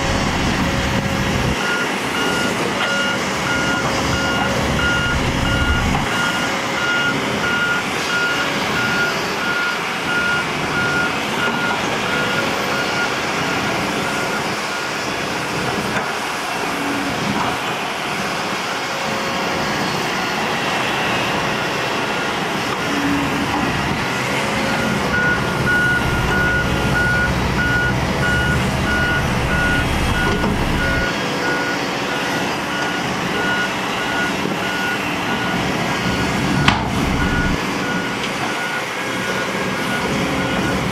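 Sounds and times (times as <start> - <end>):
heavy machinery engine rumble: 0.0 - 40.9
reversing alarm beeping: 1.5 - 15.0, 24.6 - 40.9.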